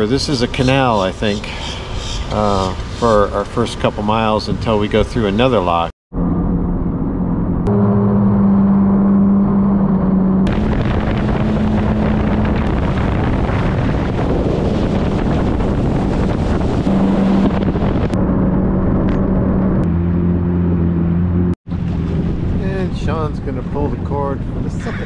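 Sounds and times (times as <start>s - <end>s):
rush of water spray and wind: 10.5s - 18.2s
jet ski engine hum: 10.5s - 25.0s.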